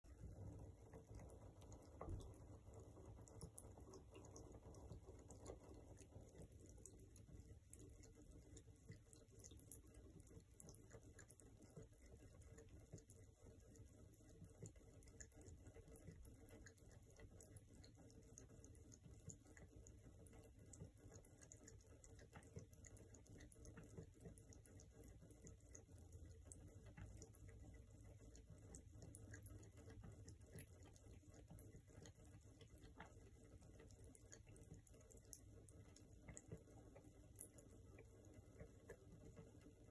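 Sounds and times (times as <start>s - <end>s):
cat lapping water: 0.0s - 39.9s
water trickling from faucet: 0.0s - 39.9s.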